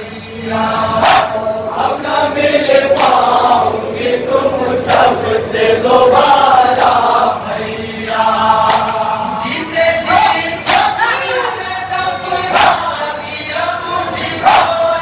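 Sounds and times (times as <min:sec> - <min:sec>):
men chanting in unison: 0:00.0 - 0:15.0
chest-beating slaps: 0:02.9 - 0:03.2, 0:08.6 - 0:09.0, 0:10.6 - 0:11.0.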